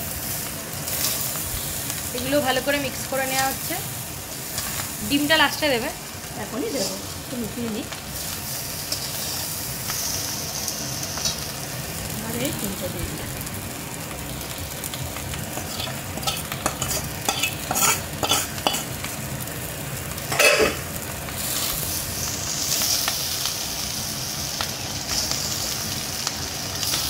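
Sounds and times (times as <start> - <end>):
rice sizzling: 0.0 - 27.0
metal spatula scraping wok: 8.8 - 10.3, 15.6 - 18.9.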